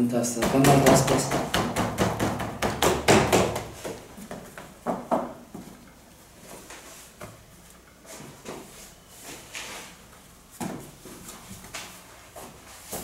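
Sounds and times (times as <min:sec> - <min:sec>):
hands tapping and slapping dough: 0:00.4 - 0:05.3.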